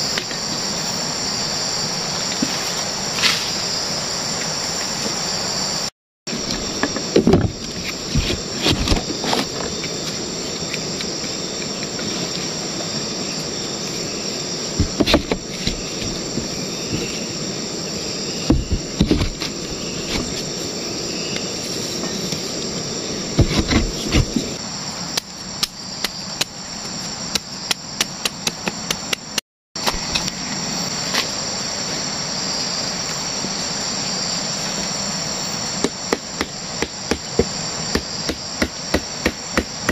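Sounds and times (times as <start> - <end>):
tropical forest insects chorus: 0.0 - 39.9
hammer tapping wooden stake: 35.8 - 39.9.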